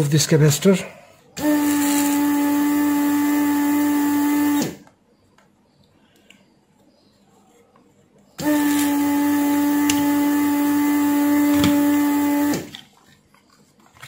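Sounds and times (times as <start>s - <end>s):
vacuum pump humming: 1.4s - 5.0s, 8.4s - 12.8s.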